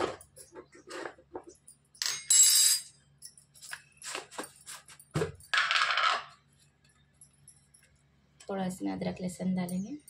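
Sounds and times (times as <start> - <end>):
metallic jingling and clatter: 7.0 - 8.1.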